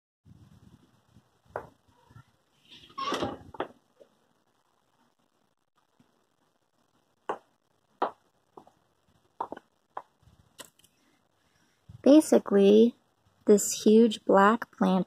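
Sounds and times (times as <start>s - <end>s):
faint taps and clicks: 9.4s - 10.9s.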